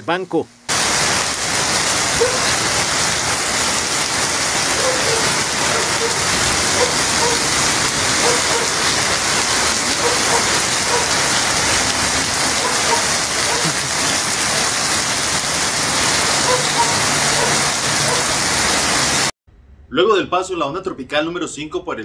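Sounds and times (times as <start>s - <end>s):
heavy rain hiss: 0.0s - 19.3s
floodwater rushing: 0.7s - 19.3s.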